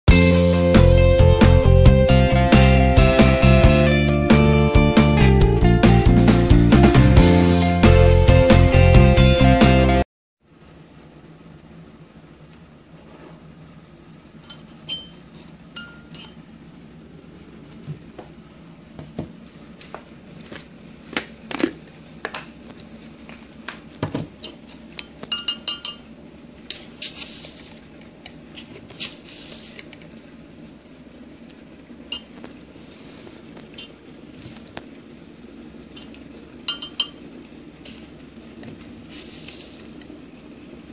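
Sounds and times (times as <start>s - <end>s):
teaspoon clinking in ceramic mug: 36.7s - 37.2s.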